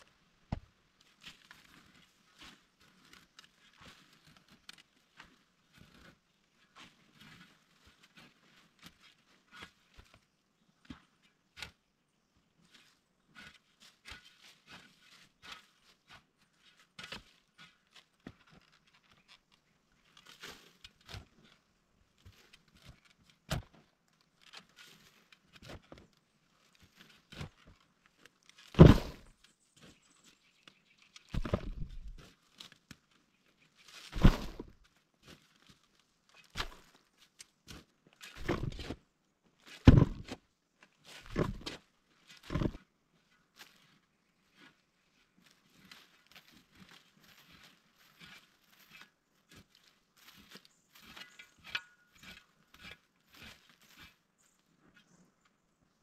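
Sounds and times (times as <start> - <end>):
heavy digging thuds and scrapes: 28.6 - 29.4, 31.3 - 32.4, 33.9 - 35.4, 37.7 - 39.0, 39.6 - 40.4, 41.0 - 42.9, 46.3 - 54.2
faint scrapes and clicks: 39.6 - 55.6.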